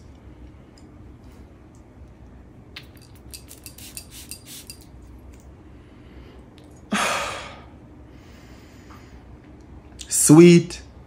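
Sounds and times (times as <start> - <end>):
perfume bottle and cap clinking: 2.8 - 5.0.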